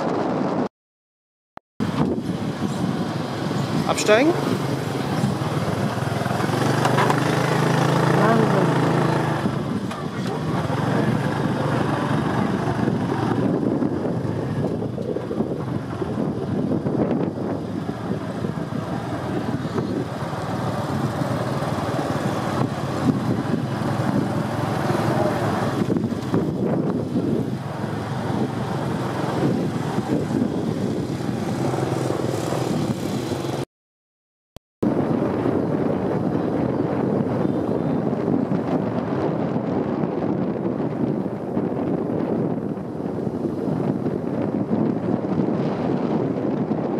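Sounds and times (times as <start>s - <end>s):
motorbike engines running: 1.8s - 33.6s
street traffic noise: 1.8s - 33.7s, 34.8s - 46.9s.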